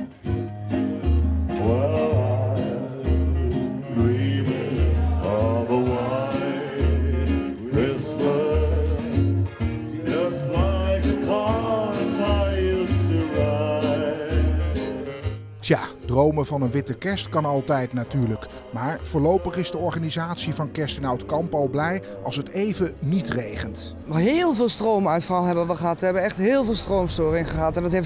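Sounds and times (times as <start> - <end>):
bass line: 0.0 - 18.4
strummed guitar: 0.0 - 21.1
person singing: 0.8 - 15.4.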